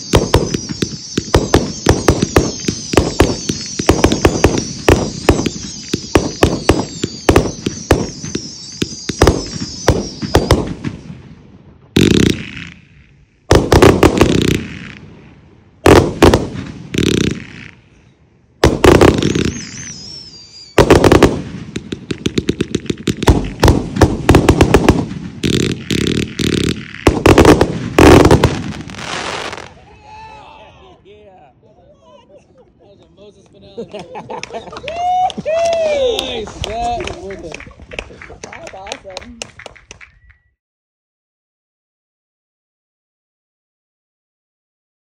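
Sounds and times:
firework whistle: 0:00.0 - 0:11.2, 0:15.9 - 0:29.8
firework bangs and crackling: 0:00.0 - 0:18.0, 0:18.6 - 0:29.9, 0:34.8 - 0:40.3.

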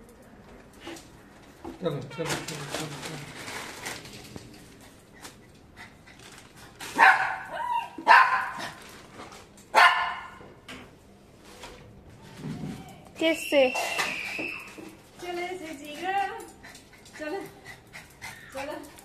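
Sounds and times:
small dog barking: 0:07.0 - 0:08.8, 0:09.7 - 0:10.4.

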